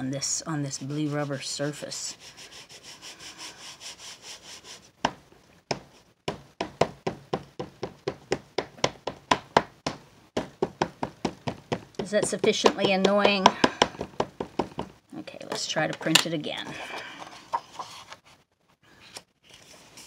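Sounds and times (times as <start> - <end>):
ink pad rubbing on rubber plate: 0.6 - 4.8
ink pad tapping: 6.3 - 15.0.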